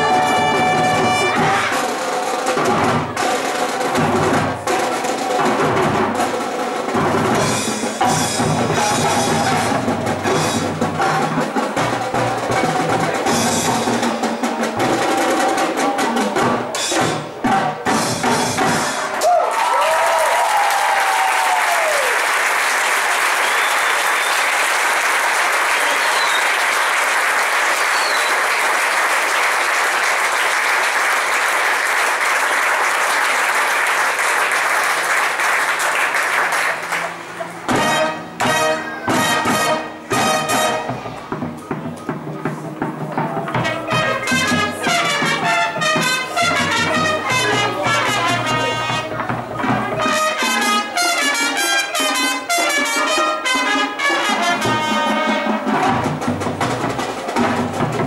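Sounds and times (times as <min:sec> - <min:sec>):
crowd applauding: 0:00.0 - 0:02.1, 0:19.0 - 0:39.1, 0:43.2 - 0:58.0
drum and bugle corps playing: 0:00.0 - 0:22.2, 0:34.4 - 0:58.0
crowd cheering and whooping: 0:19.1 - 0:28.9.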